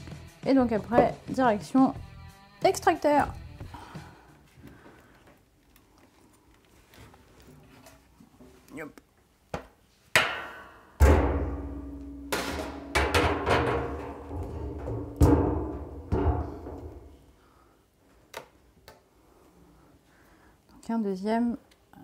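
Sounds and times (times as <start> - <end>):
metal clanks and knocks: 10.2 - 17.2
metal drum ringing with low hum: 11.0 - 17.1.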